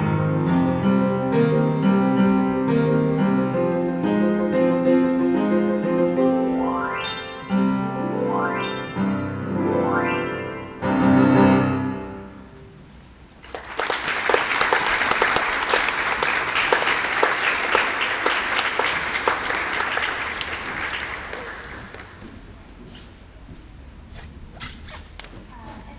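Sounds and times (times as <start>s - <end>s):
upright piano playing: 0.0s - 12.9s
audience applauding: 13.4s - 22.5s.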